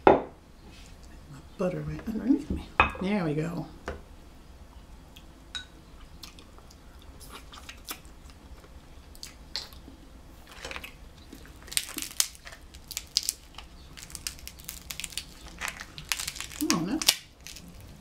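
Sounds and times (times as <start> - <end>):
chewing: 6.0 - 8.4
crab shells cracking: 10.5 - 18.0.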